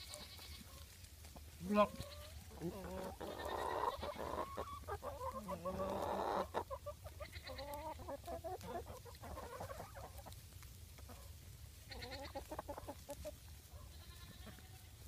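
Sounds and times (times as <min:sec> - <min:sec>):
goats calling: 0:00.0 - 0:10.4, 0:11.1 - 0:15.0
hen calling: 0:01.6 - 0:10.2, 0:11.9 - 0:13.2.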